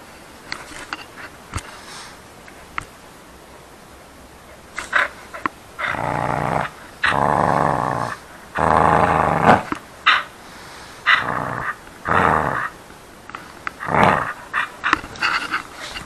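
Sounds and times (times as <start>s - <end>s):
dog play-growling: 4.5s - 10.4s, 11.0s - 16.0s.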